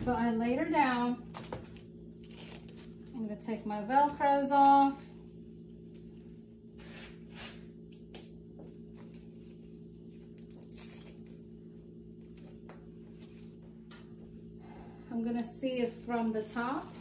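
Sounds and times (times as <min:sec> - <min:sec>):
steady low hum: 0:00.0 - 0:17.0
velcro ties ripping: 0:10.4 - 0:11.4.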